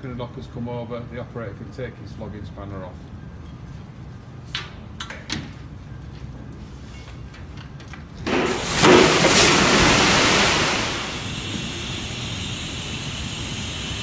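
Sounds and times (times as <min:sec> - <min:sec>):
air rushing from discharge door: 0:08.3 - 0:14.0.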